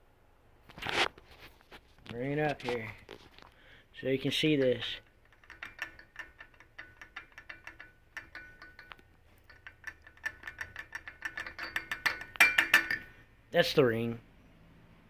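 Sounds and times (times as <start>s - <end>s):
gear teeth clicking and rattling: 4.3s - 13.0s.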